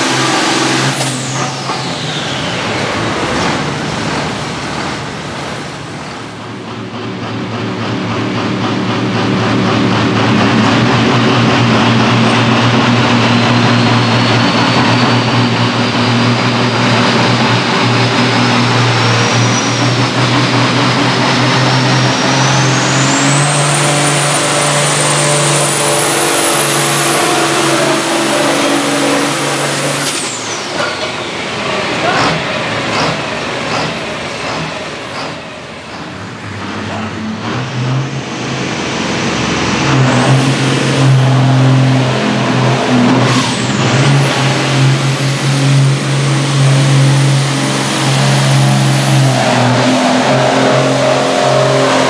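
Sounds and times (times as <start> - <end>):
diesel tractor engine running hard: 0.0 - 52.0
high turbo whistle: 21.8 - 30.8, 44.6 - 52.0.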